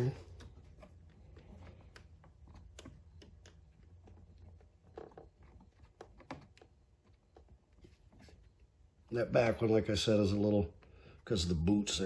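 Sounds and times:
small nut clicking and tapping: 0:00.3 - 0:07.7.

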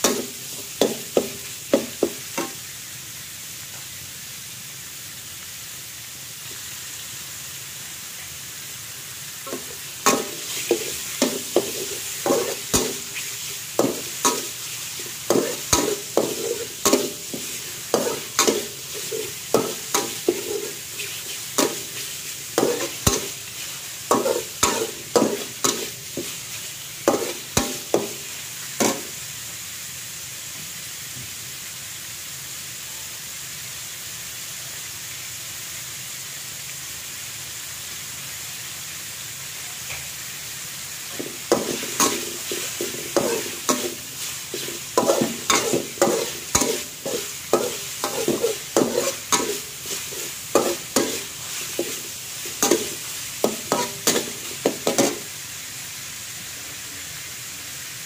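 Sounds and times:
metal spatula scraping wok: 0:00.0 - 0:02.6, 0:09.5 - 0:29.2, 0:41.1 - 0:55.3
frying sizzle: 0:00.0 - 0:58.0.

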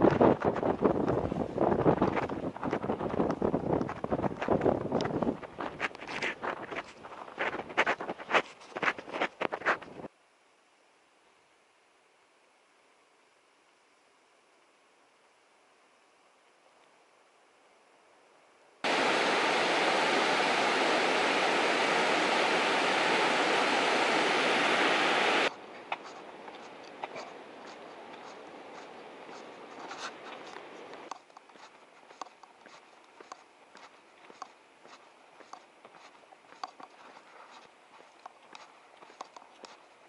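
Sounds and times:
water rushing down a check dam: 0:18.8 - 0:25.5
footsteps on asphalt: 0:25.9 - 0:39.9.

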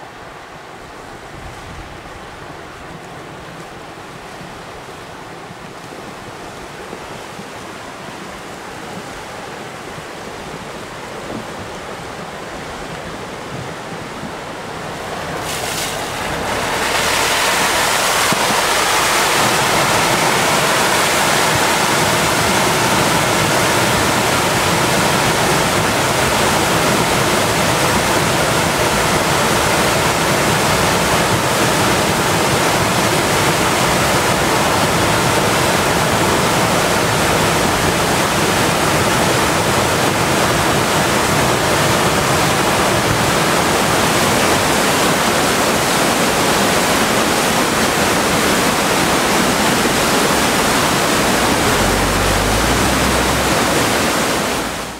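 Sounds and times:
flood water rushing roar: 0:00.0 - 0:54.9.

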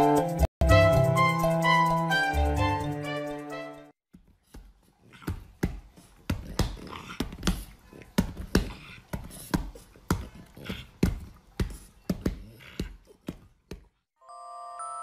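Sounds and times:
dog paws slapping a hand: 0:04.1 - 0:14.0.

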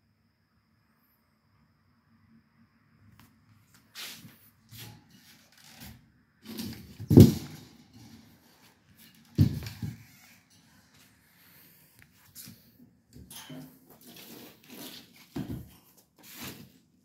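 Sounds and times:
fan grille knocking and rattling: 0:04.8 - 0:10.1.

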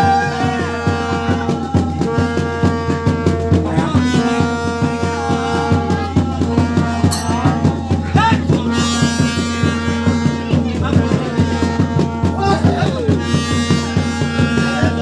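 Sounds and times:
quick steady drumbeat: 0:00.0 - 0:15.0
wavering melody: 0:06.2 - 0:08.6.

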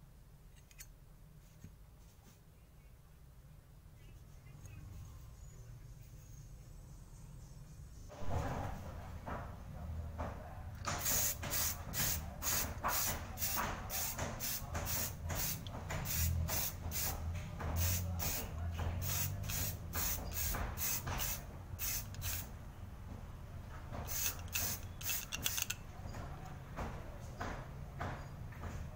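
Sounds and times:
spray paint can hissing: 0:10.9 - 0:17.2, 0:17.8 - 0:18.4, 0:19.0 - 0:22.5, 0:24.1 - 0:25.7.

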